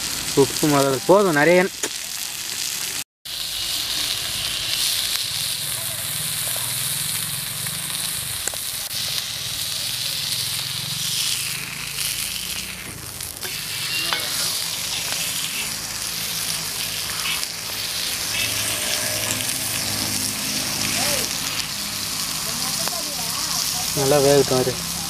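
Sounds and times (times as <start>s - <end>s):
meat sizzling in oil: 0.0s - 25.0s
metal spatula scraping griddle: 12.6s - 22.9s.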